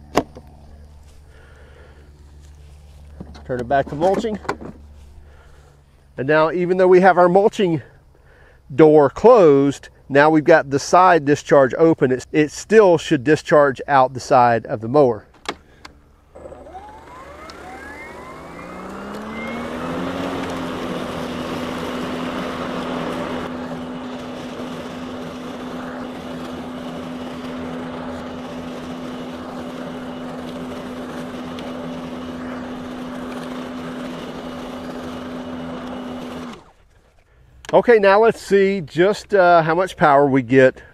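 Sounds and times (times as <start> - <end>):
electric lawn mower whining: 0.0 - 6.8, 15.3 - 37.7.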